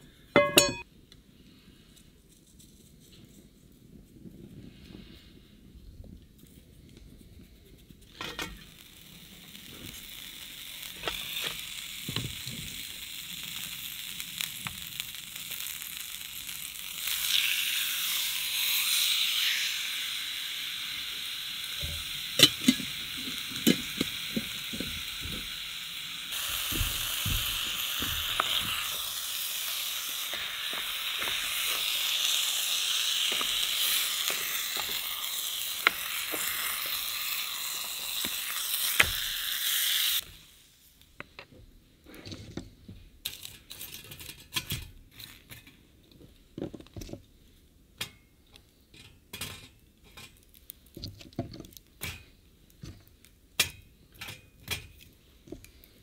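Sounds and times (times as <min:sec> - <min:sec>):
utensils clinking on pan: 0:00.4 - 0:00.8
meat sizzling in frying pan: 0:08.3 - 0:40.7.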